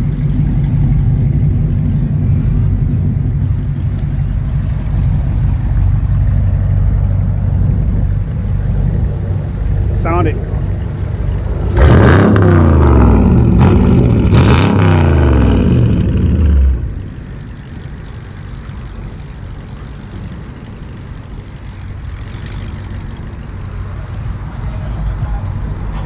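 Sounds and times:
car engine revving: 0:00.0 - 0:17.2
road traffic hum: 0:00.0 - 0:26.0.

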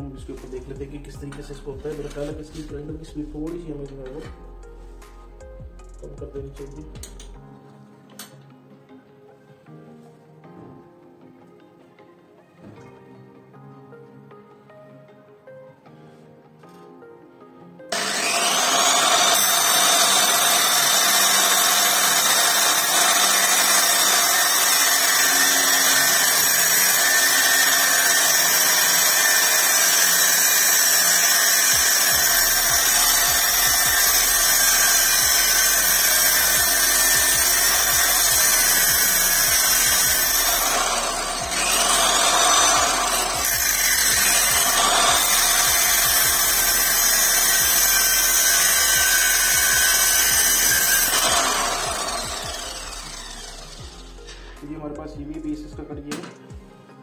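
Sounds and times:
angle grinder cutting steel: 0:17.9 - 0:54.6.

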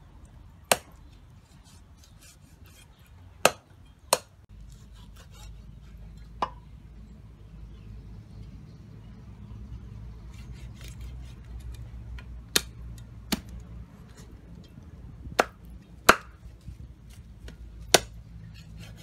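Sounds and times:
cleaver chopping on wooden board: 0:15.4 - 0:16.4, 0:17.4 - 0:18.1.

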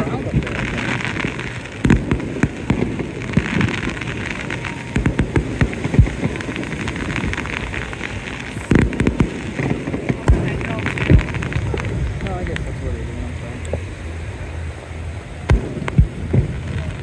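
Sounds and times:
fireworks crackling and booming: 0:00.0 - 0:17.0.

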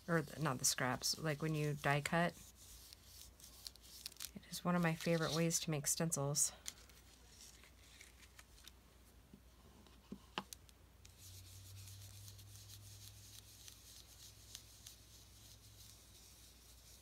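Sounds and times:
foam tool rubbing on paper: 0:00.0 - 0:05.9, 0:11.1 - 0:17.0.

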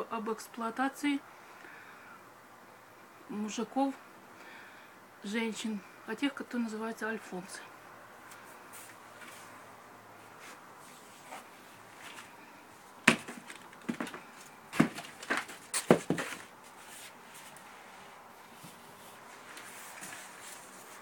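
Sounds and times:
picture frames knocking: 0:13.1 - 0:16.5.

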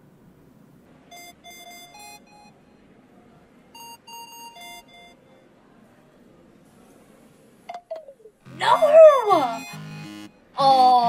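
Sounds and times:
electronic beeping tune: 0:08.5 - 0:10.4.

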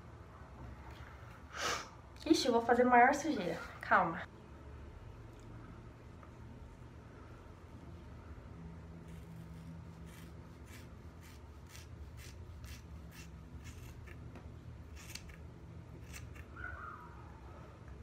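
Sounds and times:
scissors cutting wet hair: 0:14.9 - 0:16.6.

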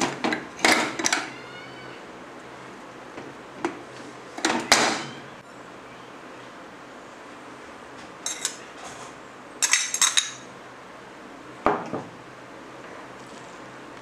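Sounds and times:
kitchenware clinking: 0:08.2 - 0:08.6, 0:09.6 - 0:10.5.

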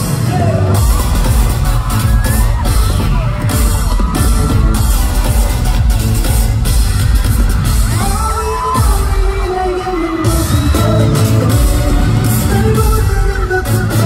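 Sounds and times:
heavy bass beat: 0:00.0 - 0:14.0
pop song over sound system: 0:00.0 - 0:14.0
male group singing: 0:08.0 - 0:14.0.

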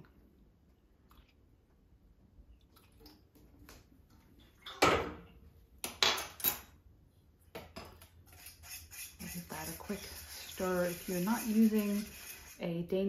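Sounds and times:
faint water drips: 0:00.0 - 0:04.8.

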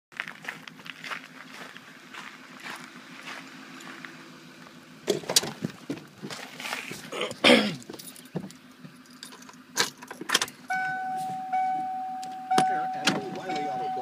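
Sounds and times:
car door clicks and clunks: 0:05.0 - 0:06.1, 0:07.8 - 0:13.9
keys jangling: 0:07.9 - 0:10.1
dashboard warning chime: 0:10.7 - 0:14.0.

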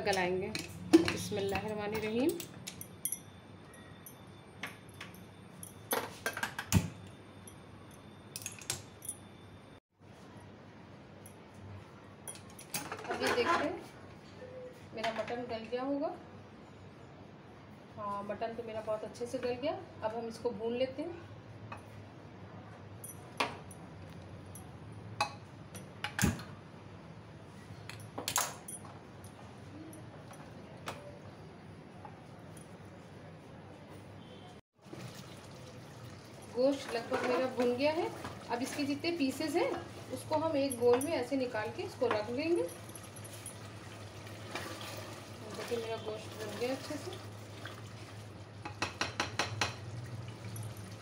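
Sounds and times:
kitchenware clinking: 0:12.2 - 0:13.8, 0:36.6 - 0:43.8
wooden spoon knocking on metal pot: 0:48.6 - 0:49.8.

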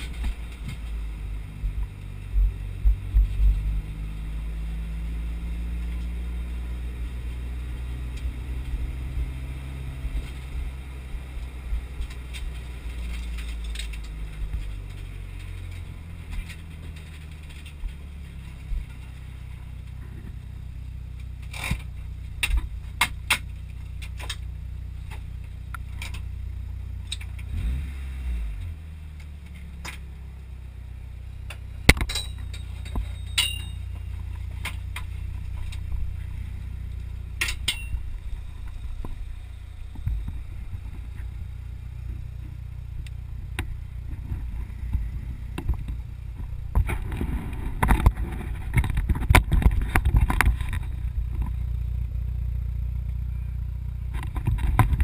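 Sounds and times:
close scraping and rustling: 0:00.0 - 0:02.4, 0:05.2 - 0:30.4, 0:31.5 - 0:55.0
car engine idling: 0:00.0 - 0:55.0
sharp clicks and knocks: 0:21.2 - 0:26.3, 0:31.4 - 0:51.6, 0:54.1 - 0:55.0.

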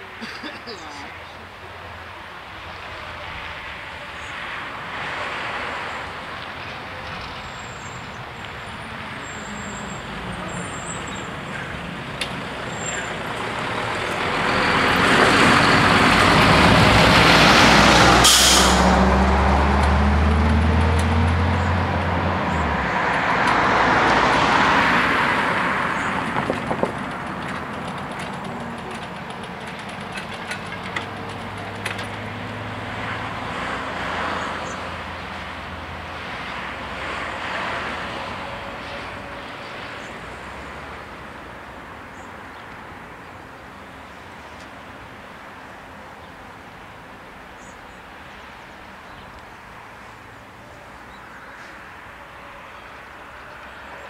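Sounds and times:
vehicle passing: 0:01.9 - 0:42.0
heavy truck driving past: 0:03.0 - 0:29.4, 0:30.1 - 0:41.4
air brake hiss: 0:18.2 - 0:18.9.

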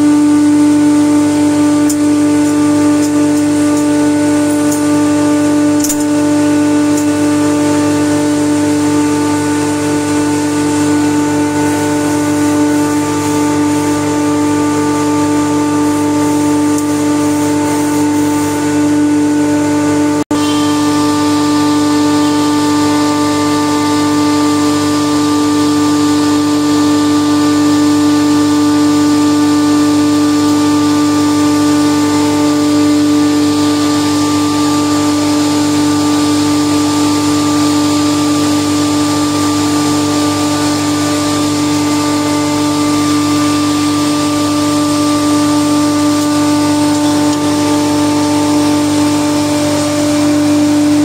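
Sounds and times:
machinery drone: 0:00.0 - 0:26.6.

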